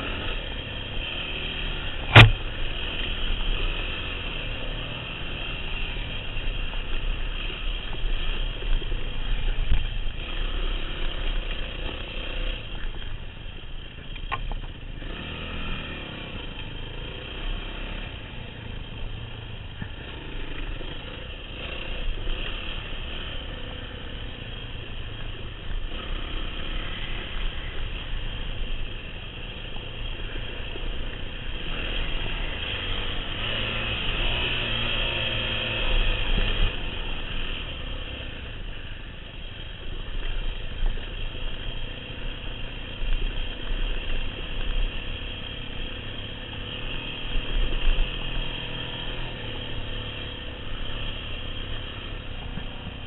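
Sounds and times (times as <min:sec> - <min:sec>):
dirt bike engine running: 0:00.0 - 0:53.0
sharp click: 0:02.1 - 0:02.4.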